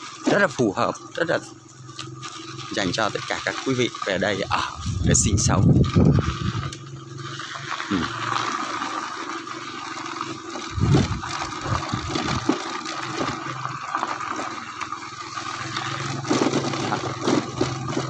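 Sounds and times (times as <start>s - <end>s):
wind and tyres rushing: 4.4s - 18.0s.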